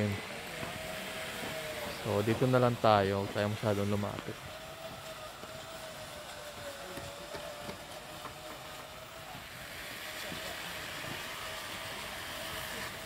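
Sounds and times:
distant machine hum: 0:00.0 - 0:13.0
hiss: 0:00.0 - 0:13.0.

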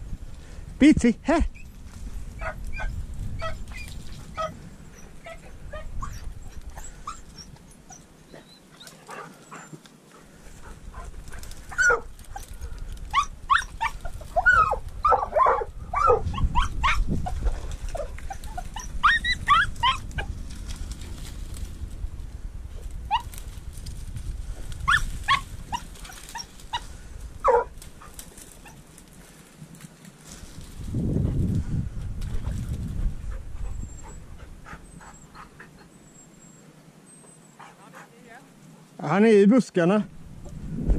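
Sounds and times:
dogs yelping and barking: 0:01.6 - 0:20.4, 0:23.1 - 0:23.5, 0:24.8 - 0:28.9, 0:33.2 - 0:38.0.

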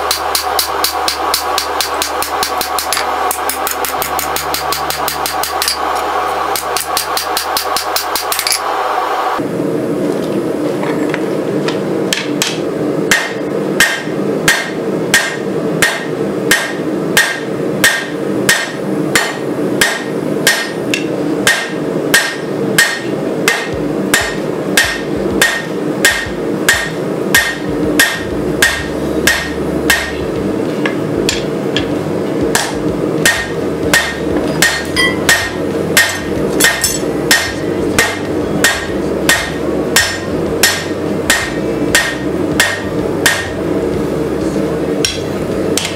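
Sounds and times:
hammer striking hot metal: 0:00.0 - 0:08.7, 0:12.1 - 0:43.8, 0:45.0 - 0:45.9
steady drone: 0:00.0 - 0:10.0, 0:21.2 - 0:45.9.

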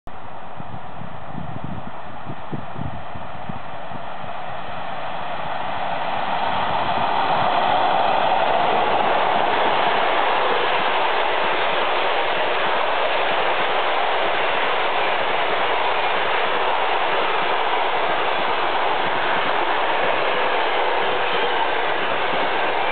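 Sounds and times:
electric locomotive passing: 0:00.1 - 0:22.9
train wheels rushing on rails: 0:00.1 - 0:22.9.

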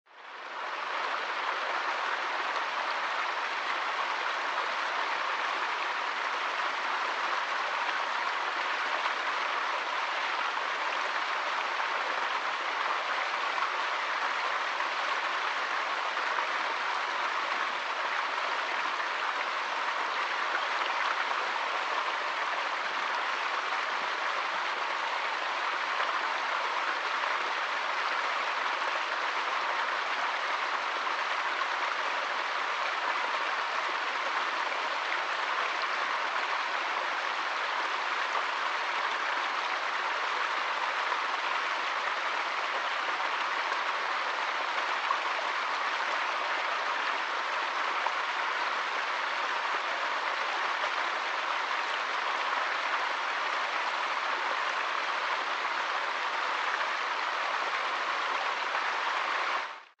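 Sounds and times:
stream splashing over rocks: 0:00.2 - 1:00.0.

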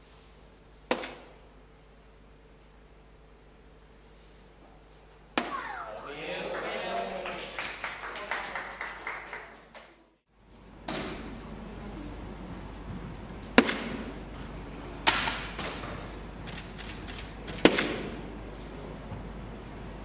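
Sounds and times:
darts hitting electronic dartboard: 0:00.9 - 0:01.4, 0:05.4 - 0:05.8, 0:10.8 - 0:11.3, 0:13.5 - 0:14.2, 0:17.6 - 0:18.2.

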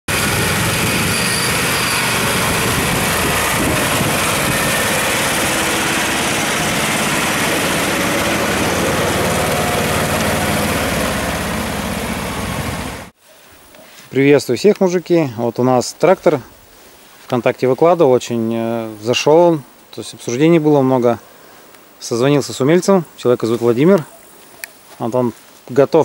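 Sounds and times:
tractor engine running: 0:00.1 - 0:13.1.

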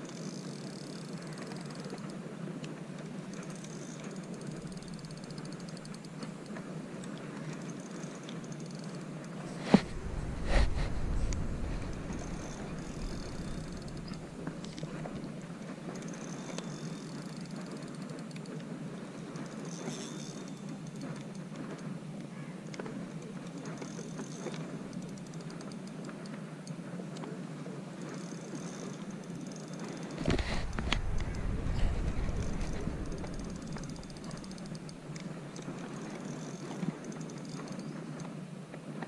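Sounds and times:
fishing reel whirring: 0:00.0 - 0:02.2, 0:03.3 - 0:18.5, 0:19.2 - 0:21.3, 0:23.4 - 0:26.0, 0:28.0 - 0:37.9
faint rattling ticks: 0:00.0 - 0:39.0.

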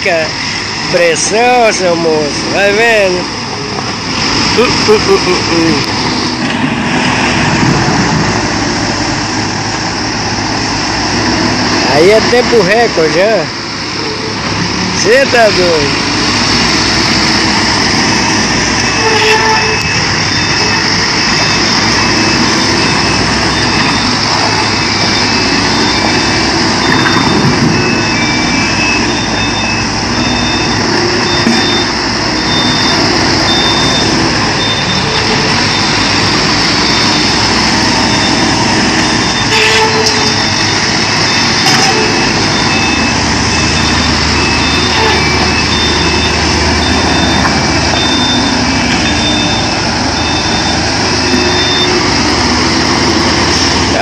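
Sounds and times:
diesel engines running: 0:00.0 - 0:54.0
reversing alarm beeping: 0:17.4 - 0:54.0.

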